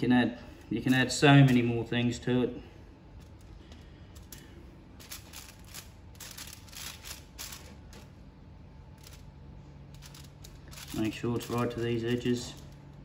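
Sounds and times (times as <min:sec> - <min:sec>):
crinkly foil rustling: 0:04.3 - 0:08.1.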